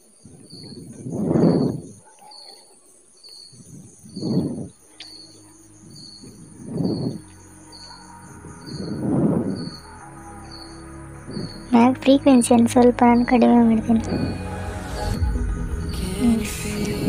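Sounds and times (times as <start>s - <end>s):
crickets chirping: 0.0s - 17.0s
rushes of low noise: 3.6s - 17.0s.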